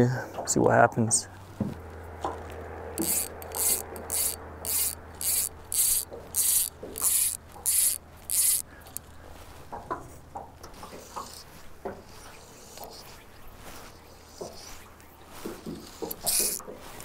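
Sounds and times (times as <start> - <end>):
fly line hissing through rod guides: 3.0 - 9.2, 10.7 - 17.0.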